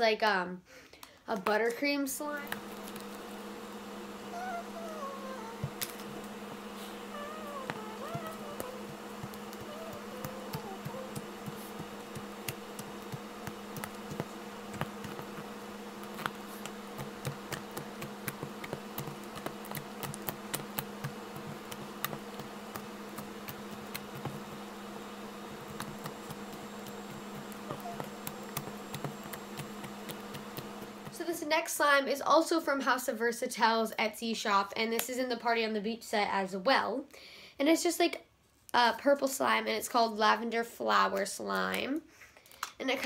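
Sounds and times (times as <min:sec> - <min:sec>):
low steady hum: 0:01.2 - 0:32.0.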